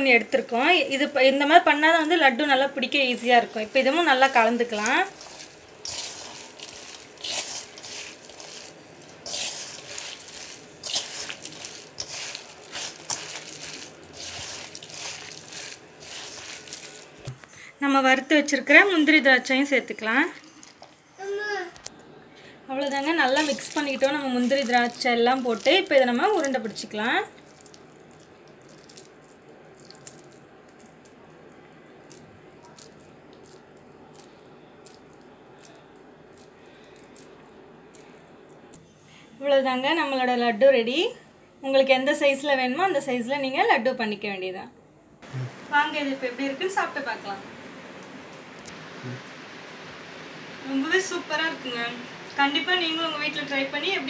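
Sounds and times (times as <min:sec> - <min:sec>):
hand scraping in steel bowl: 0:03.4 - 0:17.4
sticky food squishing in hands: 0:03.4 - 0:17.4, 0:23.0 - 0:38.8
low hiss: 0:45.0 - 0:54.0.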